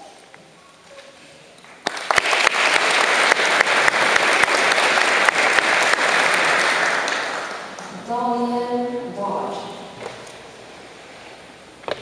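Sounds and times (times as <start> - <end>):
audience applauding: 1.6 - 7.9.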